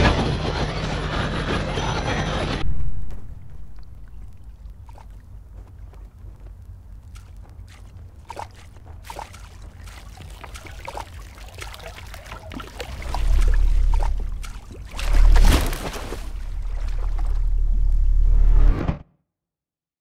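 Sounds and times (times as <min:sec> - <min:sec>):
steady low rumble: 0:00.0 - 0:18.9
small water splashes: 0:04.3 - 0:05.3, 0:07.1 - 0:17.8
deep surges of water: 0:07.1 - 0:18.3.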